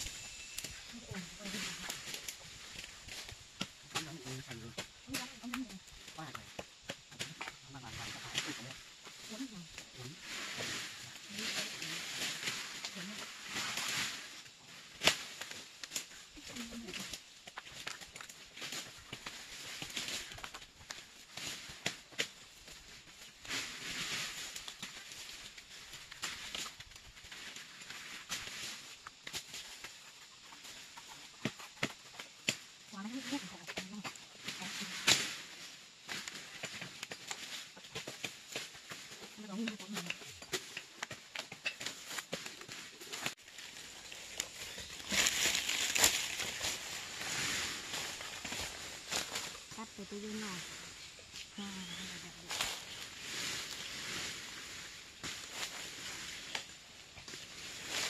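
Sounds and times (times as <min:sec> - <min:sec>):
dry bark and leaves rustling: 0:00.0 - 0:58.0
bark crackling and tearing: 0:39.6 - 0:47.2.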